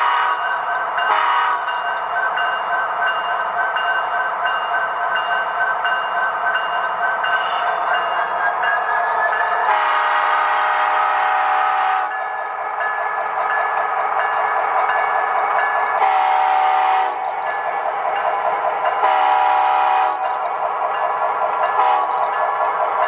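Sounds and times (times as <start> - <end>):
model train horn blasts: 0.0 - 1.8, 9.7 - 12.2, 16.0 - 17.3, 19.0 - 20.2, 21.8 - 22.2.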